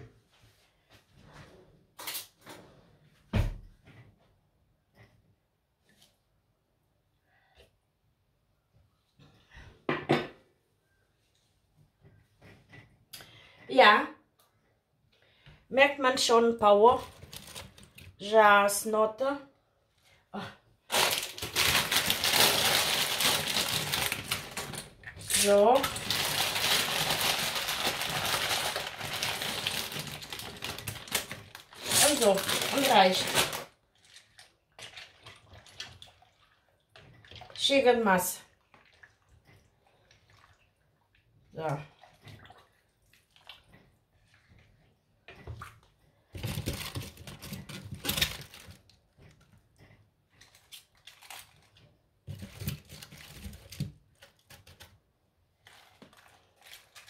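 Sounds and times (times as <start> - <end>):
plastic bag crinkling: 17.0 - 18.1, 20.9 - 34.1, 46.4 - 49.0
cabbage leaves rustling and crunching: 20.9 - 24.6, 25.3 - 33.7.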